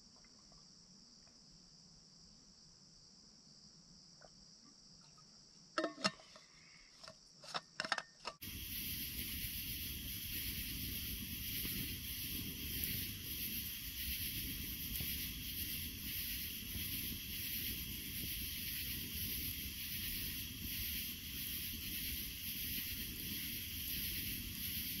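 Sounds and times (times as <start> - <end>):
campfire hissing: 8.4 - 25.0
faint fire crackle: 8.4 - 25.0.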